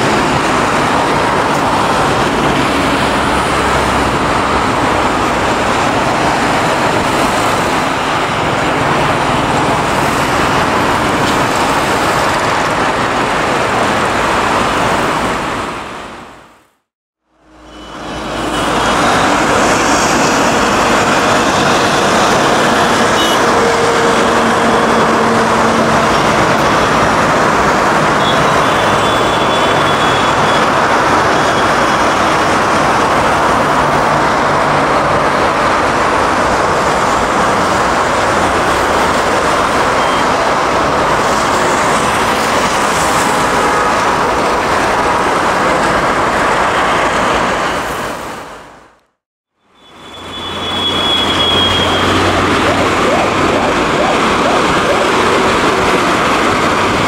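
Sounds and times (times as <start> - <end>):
turboprop airliner drone: 17.8 - 29.5, 51.4 - 57.0.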